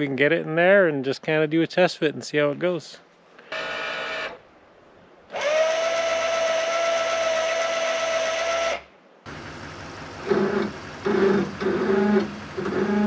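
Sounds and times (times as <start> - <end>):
electric jack motor whining: 5.3 - 8.8, 10.1 - 13.0.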